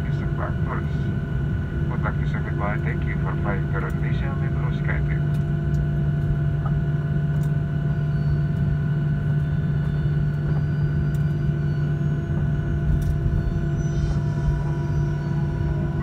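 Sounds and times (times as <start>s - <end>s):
jet engine hum in cabin: 0.0s - 16.0s.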